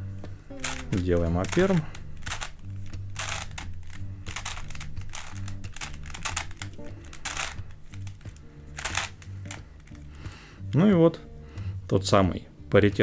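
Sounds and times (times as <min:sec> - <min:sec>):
quiet background music: 0:00.0 - 0:13.0
puzzle cube clicking turns: 0:00.5 - 0:10.2.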